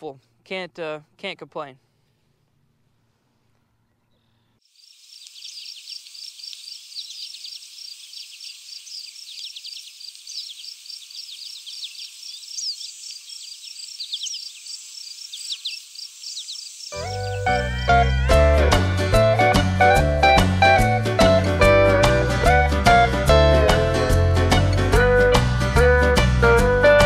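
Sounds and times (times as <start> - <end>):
insects chirping chorus: 4.6 - 18.1
music: 17.0 - 27.0.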